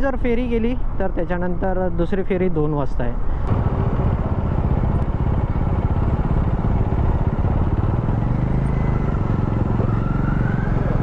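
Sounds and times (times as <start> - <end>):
motorcycle engine at low speed: 3.4 - 11.0.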